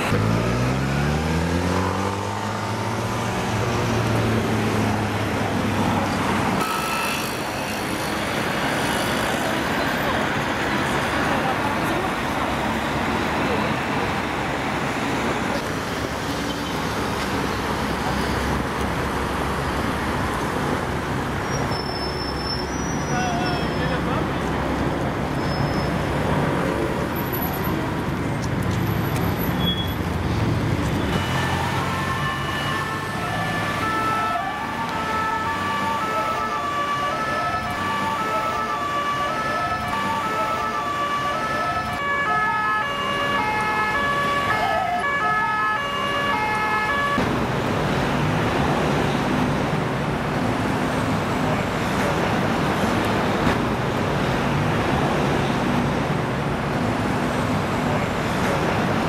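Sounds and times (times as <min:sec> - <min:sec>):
road traffic: 0:00.0 - 0:59.0
two-tone emergency siren: 0:06.6 - 0:07.7, 0:31.1 - 0:47.2.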